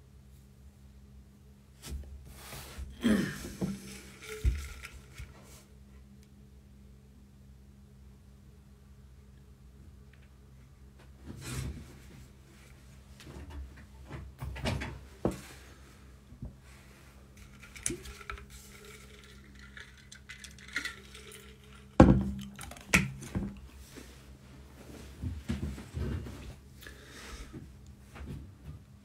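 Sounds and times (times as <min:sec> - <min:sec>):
low steady hum: 0:00.0 - 0:29.0.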